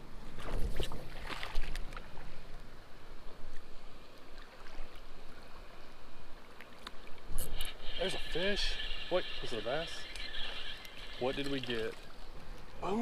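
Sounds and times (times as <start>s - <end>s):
creek water over gravel: 0.2s - 13.0s
knocks and splashes: 0.3s - 2.1s.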